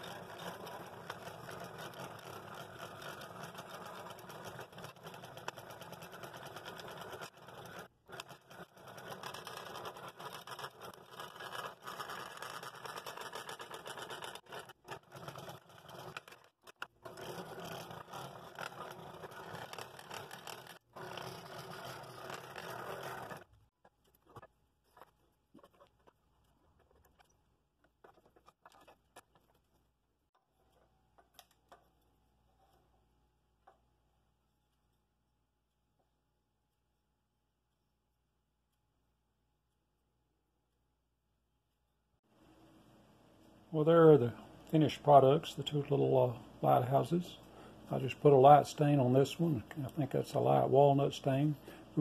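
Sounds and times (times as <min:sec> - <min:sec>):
scroll saw cutting wood: 0:00.0 - 0:26.1.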